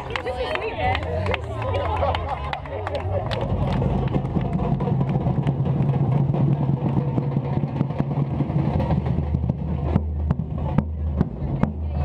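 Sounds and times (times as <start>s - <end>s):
bass drums deep tone: 3.1s - 12.0s.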